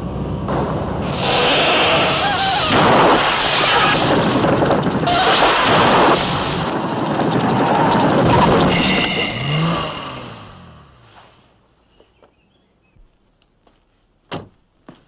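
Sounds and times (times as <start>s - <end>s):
car tyres screeching: 1.0s - 11.6s.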